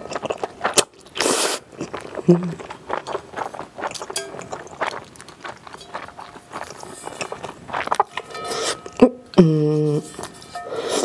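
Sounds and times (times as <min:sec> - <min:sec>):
noodle slurp: 0:00.0 - 0:08.9
wet chewing and smacking: 0:00.0 - 0:09.4
chopsticks clinking on metal bowl: 0:04.0 - 0:04.9, 0:05.7 - 0:07.4, 0:08.0 - 0:09.3, 0:10.0 - 0:11.0.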